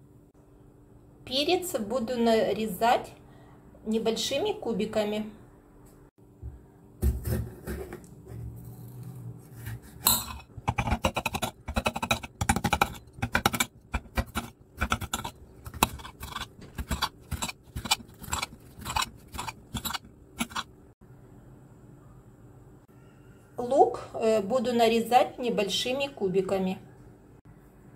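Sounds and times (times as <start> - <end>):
knife scraping: 7.2 - 20.7.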